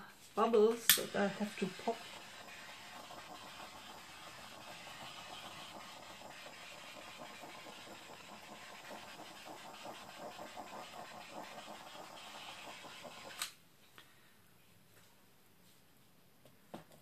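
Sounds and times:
gas torch flame hissing: 0.8s - 13.5s
torch shut-off click: 0.9s - 4.0s.

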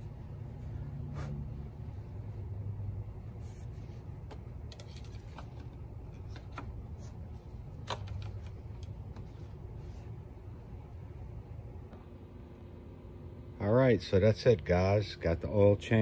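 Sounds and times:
steady low rumble: 0.0s - 4.7s.

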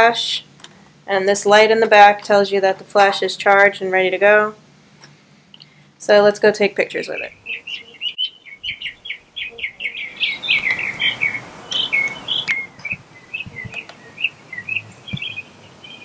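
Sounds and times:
small birds chirping: 6.9s - 16.0s.

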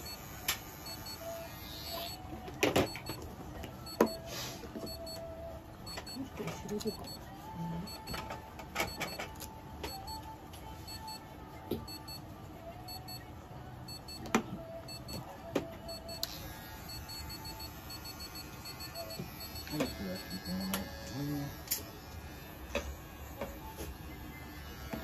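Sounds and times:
faint steady electronic tones: 0.0s - 2.2s, 5.9s - 8.2s, 11.9s - 12.2s, 12.9s - 13.3s, 15.9s - 21.3s.

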